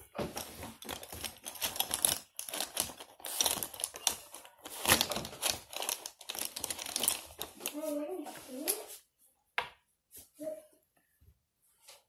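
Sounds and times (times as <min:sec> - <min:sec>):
plastic markers clattering: 0:00.0 - 0:07.9.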